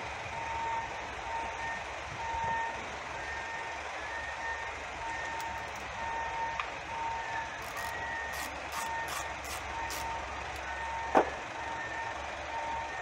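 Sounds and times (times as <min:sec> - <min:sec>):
reversing alarm beeping: 0:00.2 - 0:13.0.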